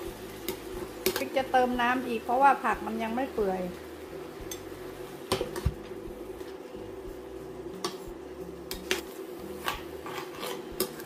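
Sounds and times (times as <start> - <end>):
steady hum: 0.0 - 11.0
metal spoon scraping a pan: 8.7 - 11.0.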